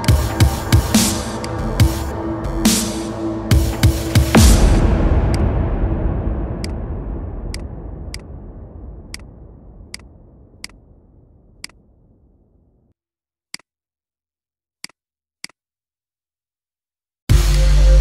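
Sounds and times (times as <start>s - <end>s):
electronic music: 0.0s - 10.8s, 17.3s - 18.0s.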